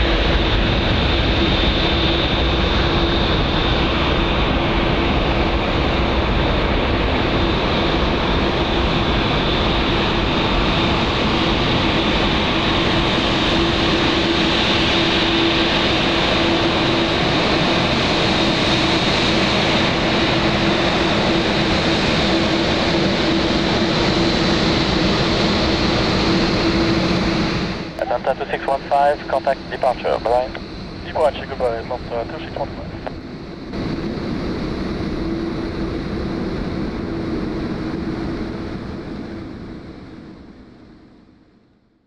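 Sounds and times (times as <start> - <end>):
jet engines at takeoff power: 0.0 - 42.0.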